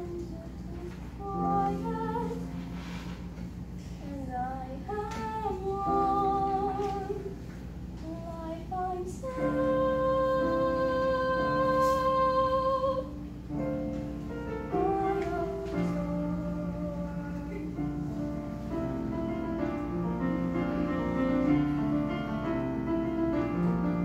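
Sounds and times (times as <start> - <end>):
girl singing: 0.0 - 2.6, 3.8 - 7.4, 8.0 - 13.2, 14.7 - 18.0.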